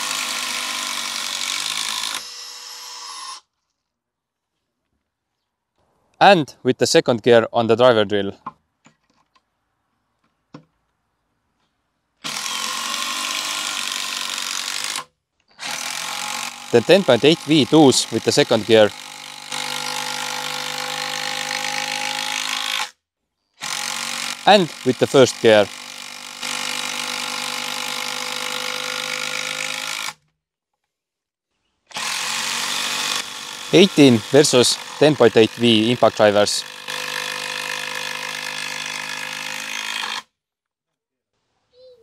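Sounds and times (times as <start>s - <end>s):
drill running: 0.0s - 3.4s, 12.2s - 22.9s, 23.6s - 30.2s, 31.9s - 40.3s.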